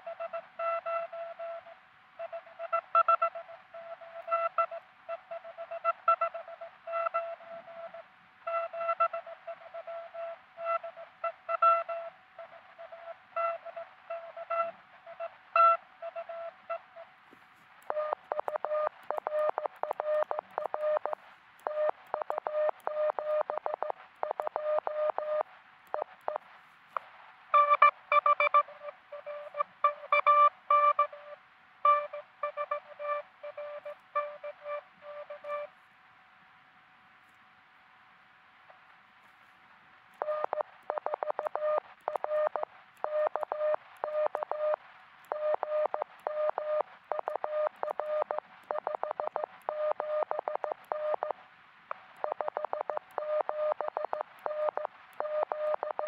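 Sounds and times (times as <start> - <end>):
morse code tones: 27.6 - 35.7.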